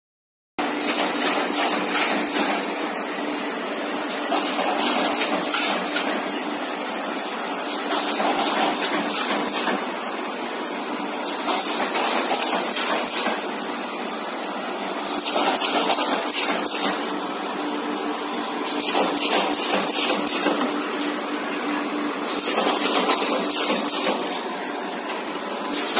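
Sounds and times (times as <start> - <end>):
mechanical clatter: 0.6 - 2.7, 4.1 - 6.2, 7.7 - 9.9, 11.2 - 13.4, 15.0 - 17.1, 18.6 - 20.9, 22.3 - 24.4, 25.1 - 25.9.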